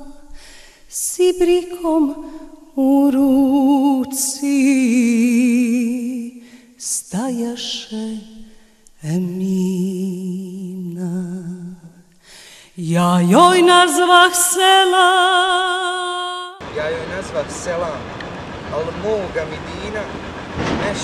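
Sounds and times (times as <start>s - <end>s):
person singing with vibrato: 0.0s - 16.6s.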